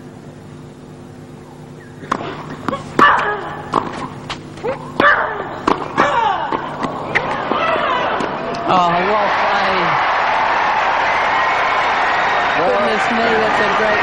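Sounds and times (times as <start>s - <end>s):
steady low hum: 0.0s - 14.0s
rackets striking tennis ball: 2.0s - 8.7s.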